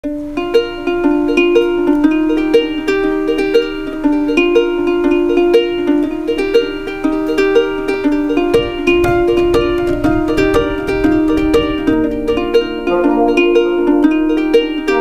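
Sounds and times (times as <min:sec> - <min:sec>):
plucked string instrument music: 0:00.0 - 0:15.0.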